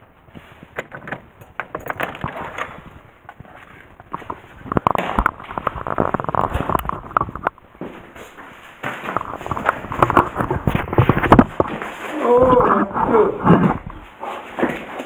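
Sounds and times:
clatter and rustling: 0.4s - 15.0s
keys rattling: 1.0s - 2.7s.

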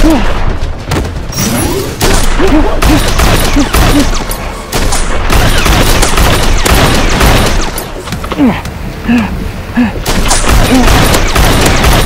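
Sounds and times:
rapid blaster fire: 0.2s - 7.8s, 10.0s - 12.0s.

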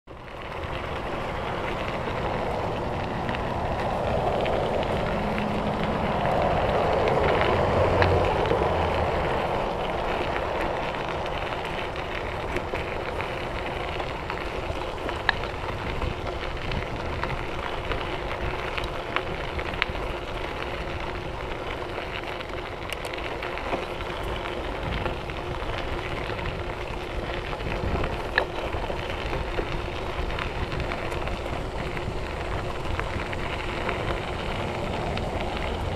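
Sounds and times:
bike tyre noise: 0.1s - 35.9s
sharp ticks from bumps: 0.1s - 35.9s
wind rushing on microphone: 0.6s - 21.9s, 24.2s - 35.9s.

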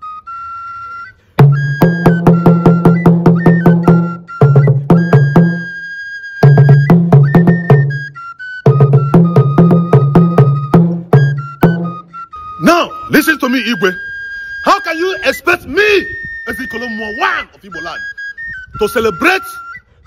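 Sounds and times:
high piping melody: 0.0s - 20.0s
wooden slit drum beaten fast: 1.4s - 5.7s, 6.4s - 8.1s, 8.7s - 12.1s.

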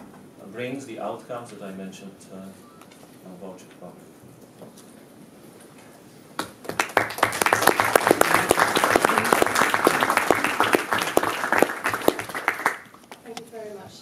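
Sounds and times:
audience applauding: 6.4s - 13.2s.

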